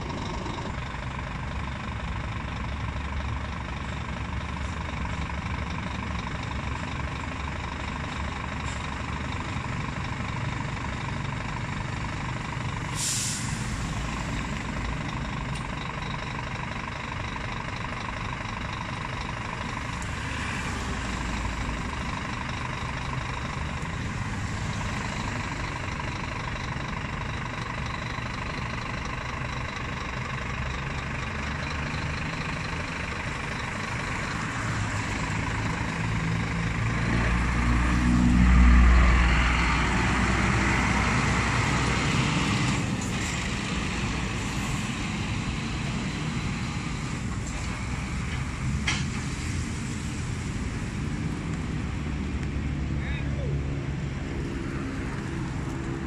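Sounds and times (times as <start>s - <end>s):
truck diesel engine idling: 0.0s - 56.0s
air brake hiss: 12.9s - 13.9s.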